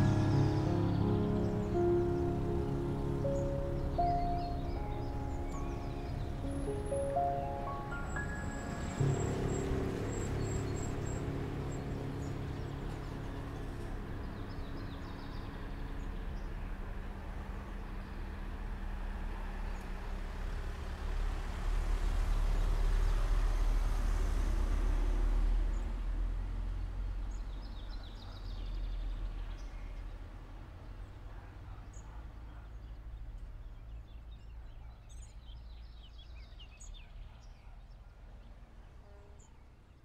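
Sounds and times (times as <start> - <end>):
held music notes: 0.0 - 17.5
low outdoor rumble: 0.0 - 34.3.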